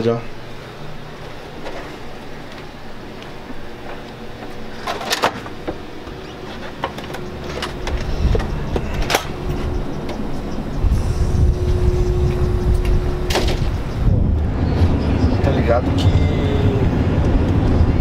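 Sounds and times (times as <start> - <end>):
wind on microphone: 7.2 - 18.0.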